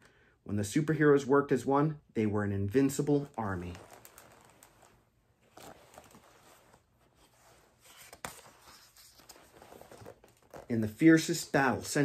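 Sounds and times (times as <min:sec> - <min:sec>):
book pages turning: 0:03.1 - 0:11.4.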